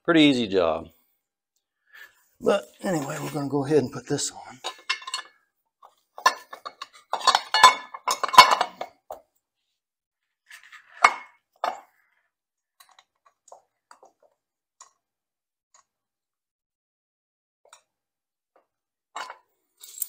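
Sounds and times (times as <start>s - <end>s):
metal parts clinking: 4.6s - 5.3s.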